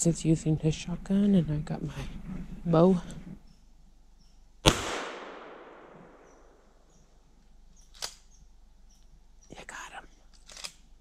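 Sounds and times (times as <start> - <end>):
shotgun shot echoing: 4.6 - 6.6.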